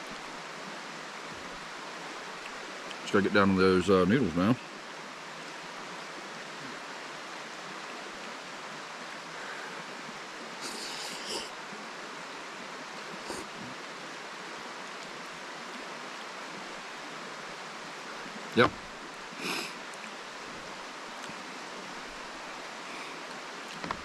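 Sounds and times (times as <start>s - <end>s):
hissy eating sounds: 10.6s - 11.5s, 13.1s - 13.8s.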